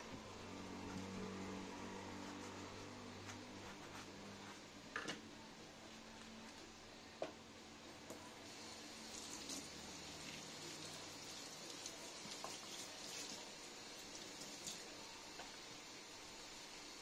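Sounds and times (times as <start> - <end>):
tap water running into sink: 9.1 - 13.4.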